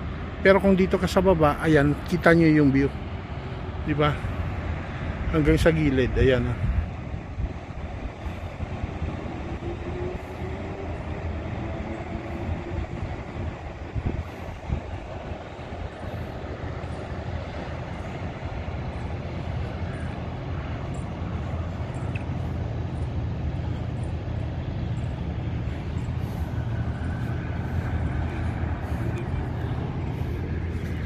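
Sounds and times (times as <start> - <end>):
low engine rumble: 0.0 - 31.0.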